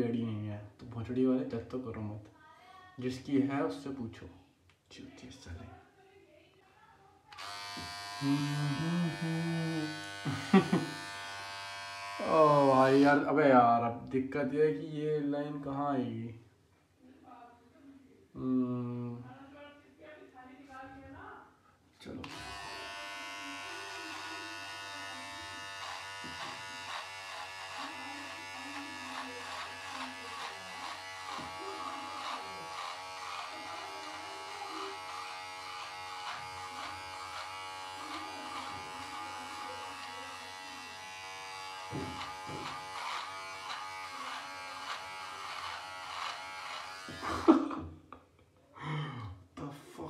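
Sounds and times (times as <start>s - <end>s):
electric beard trimmer buzzing: 7.3s - 13.2s, 22.2s - 47.6s.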